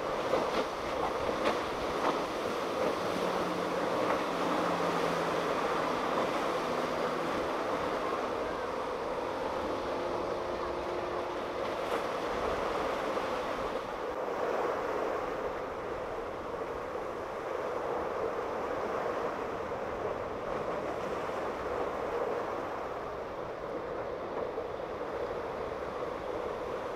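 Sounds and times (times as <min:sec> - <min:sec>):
outboard motor running: 0:00.0 - 0:14.2
choppy water: 0:00.0 - 0:26.9
wind: 0:00.0 - 0:26.9.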